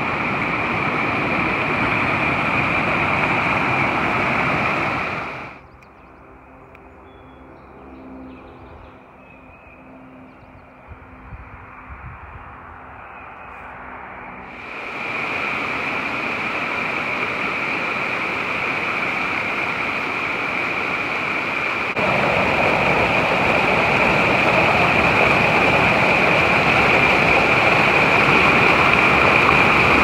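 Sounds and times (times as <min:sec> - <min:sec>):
water rushing over rocks: 0:00.0 - 0:05.6, 0:14.5 - 0:30.0.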